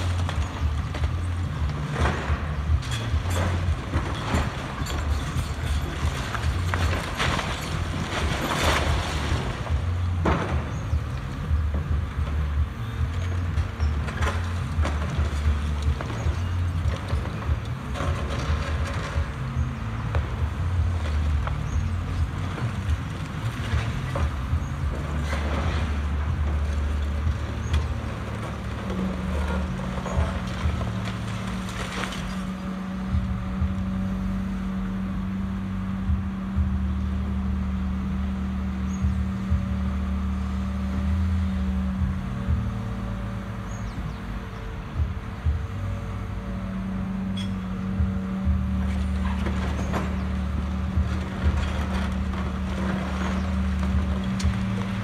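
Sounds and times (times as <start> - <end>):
masonry and metal crashing: 0.0 - 33.0, 47.4 - 55.0
debris crunching and cracking: 0.0 - 34.0, 47.4 - 55.0
excavator engine rumble: 0.0 - 55.0.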